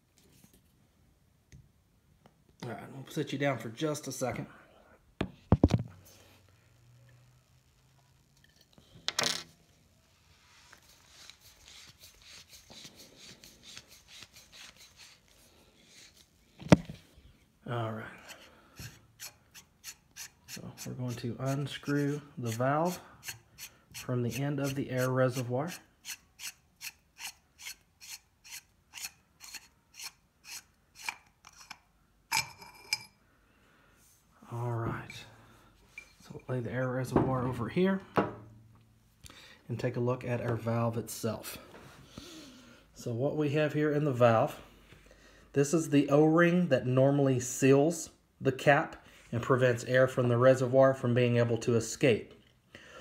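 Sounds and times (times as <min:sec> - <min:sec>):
valve cap unscrewing scrape: 0:26.1 - 0:31.8.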